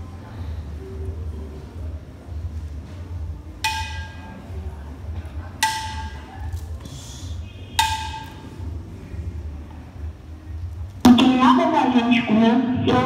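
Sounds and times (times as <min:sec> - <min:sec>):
steady low hum: 0:00.0 - 0:13.0
percussion instrument strikes: 0:03.6 - 0:04.5, 0:05.6 - 0:06.4, 0:07.7 - 0:08.7.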